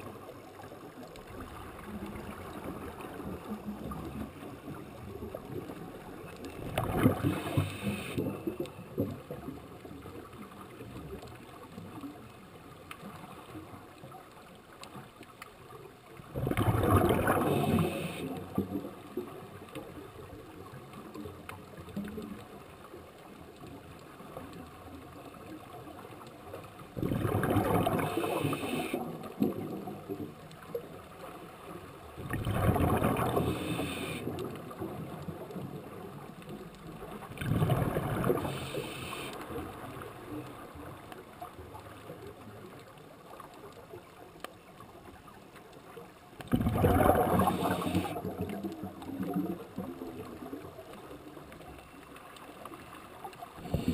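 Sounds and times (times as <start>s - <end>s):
quiet hiss: 0.0s - 53.9s
diver exhaling bubbles underwater: 6.6s - 9.1s, 16.3s - 18.7s, 27.0s - 29.8s, 32.2s - 34.4s, 37.3s - 39.1s, 46.5s - 50.0s, 53.6s - 53.9s.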